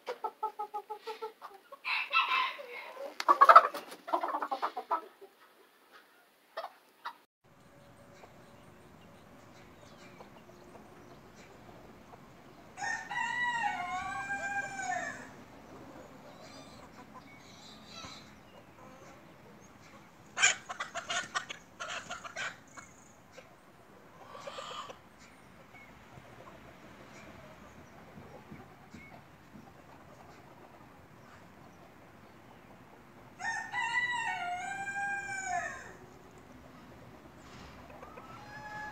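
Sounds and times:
rooster clucking: 0:00.0 - 0:07.2, 0:10.0 - 0:25.4, 0:36.6 - 0:38.9
rooster crowing: 0:01.8 - 0:03.0, 0:12.8 - 0:15.4, 0:33.4 - 0:36.0, 0:38.2 - 0:38.9.

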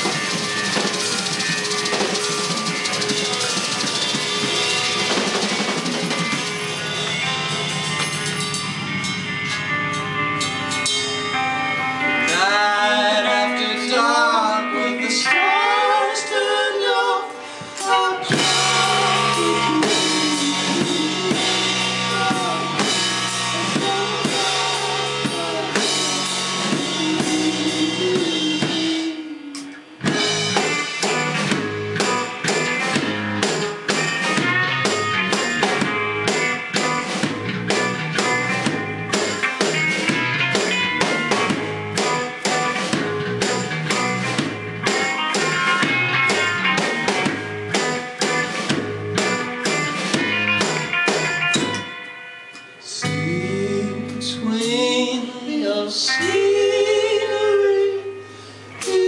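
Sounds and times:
busy drumming: 0:00.0 - 0:09.7, 0:17.8 - 0:52.0
live rock band playing: 0:00.0 - 0:59.0.

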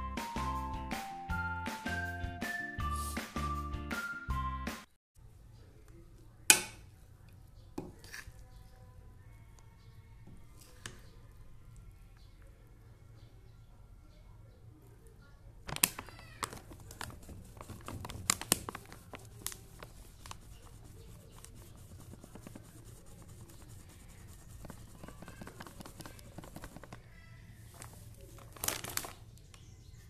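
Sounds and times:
rustling and scraping: 0:15.7 - 0:29.2.

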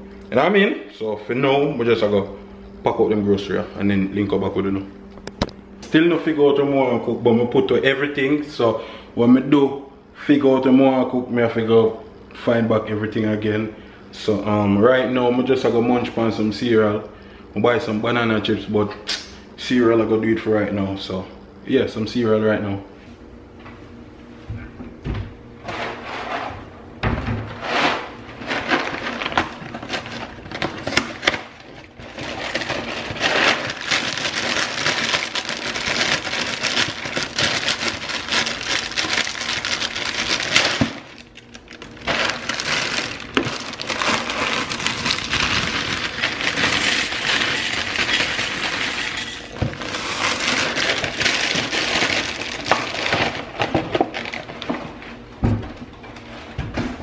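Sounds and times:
plastic bag rustling: 0:27.6 - 0:55.3
cereal flakes pouring into bowl: 0:42.1 - 0:53.1.

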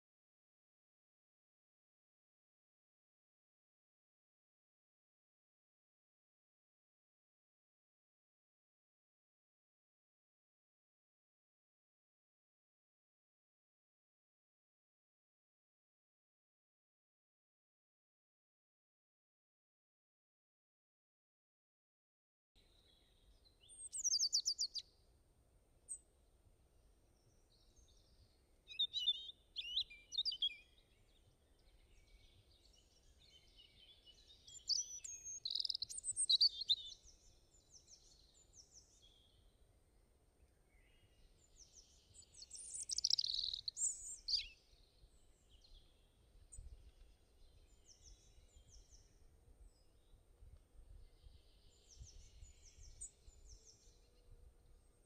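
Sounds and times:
faint low background noise: 0:22.6 - 0:55.0
birds chirping and singing: 0:22.8 - 0:24.8, 0:27.2 - 0:39.4, 0:40.7 - 0:50.1, 0:50.9 - 0:54.2.

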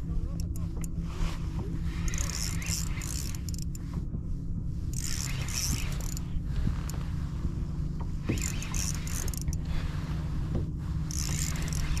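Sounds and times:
steady low rumble: 0:00.0 - 0:12.0
fishing reel clicking: 0:02.0 - 0:03.8, 0:04.9 - 0:07.0, 0:08.3 - 0:09.7, 0:11.1 - 0:12.0.

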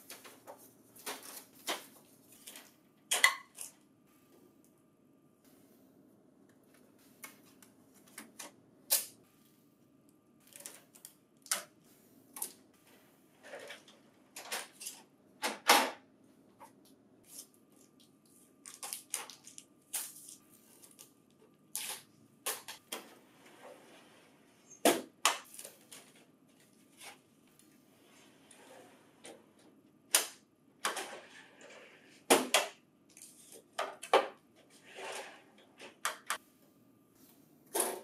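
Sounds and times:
packing tape and cardboard rustling: 0:00.0 - 0:02.7.

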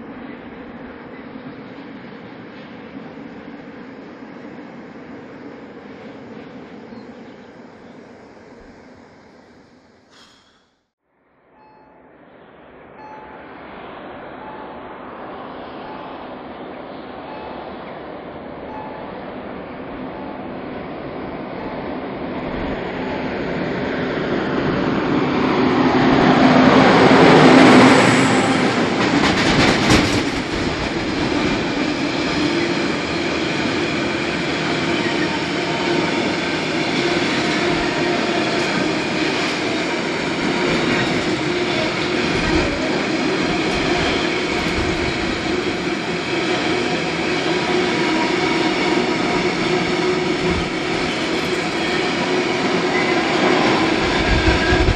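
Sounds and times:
locomotive passing: 0:11.6 - 0:54.9
train wagons rumbling: 0:12.7 - 0:54.9
train wheel clatter: 0:21.5 - 0:54.9.

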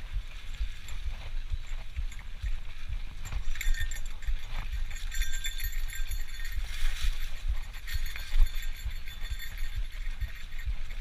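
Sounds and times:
wind and bumps on microphone: 0:00.0 - 0:11.0.

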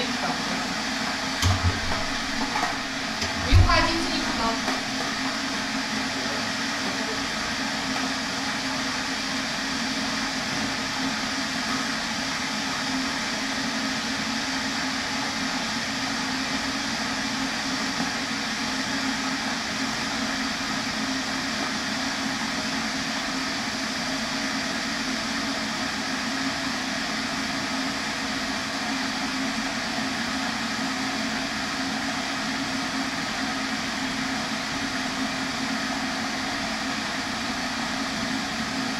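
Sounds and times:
kettle heating water: 0:00.0 - 0:38.9.

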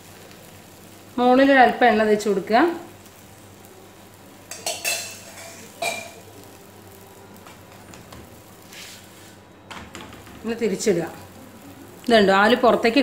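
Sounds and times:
metal spoon scraping pan: 0:04.5 - 0:06.2.

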